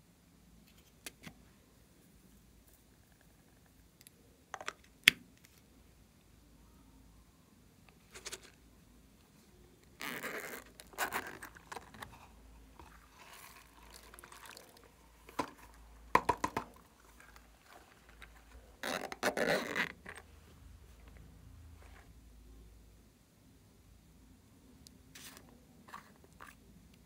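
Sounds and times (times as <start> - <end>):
hands handling plastic toys: 7.9 - 8.6, 9.9 - 20.2.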